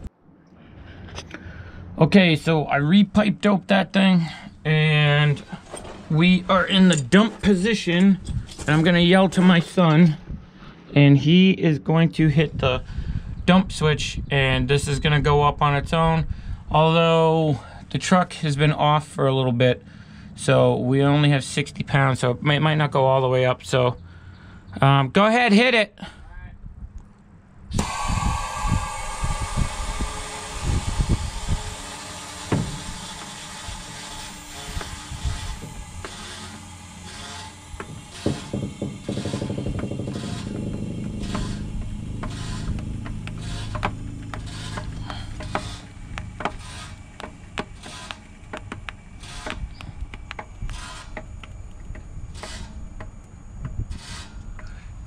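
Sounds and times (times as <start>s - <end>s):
low steady hum: 26.4s - 55.0s
compressed air hissing: 27.8s - 51.3s
low thumps: 27.8s - 54.0s
suspension creaks and clicks: 28.7s - 54.8s.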